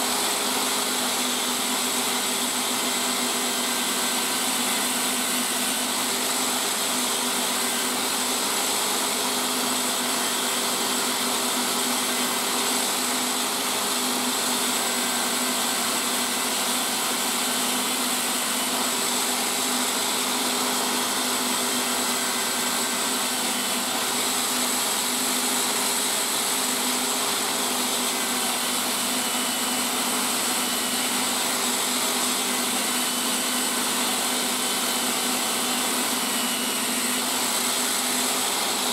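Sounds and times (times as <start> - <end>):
leather burnished on buffing wheel: 0.0 - 38.9
rotary tool hum and whine: 0.0 - 38.9.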